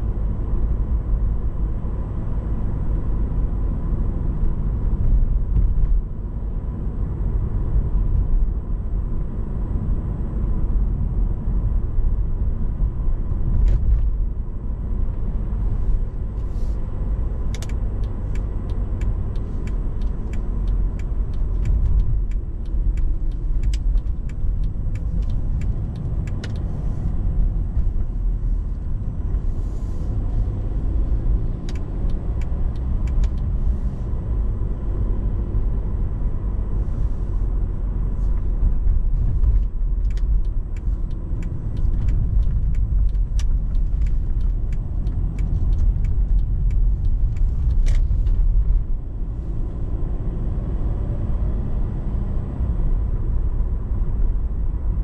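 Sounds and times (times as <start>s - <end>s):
road and tyre noise: 0.0s - 55.0s
small irregular clicks: 17.3s - 30.5s, 31.6s - 34.0s, 38.2s - 48.8s.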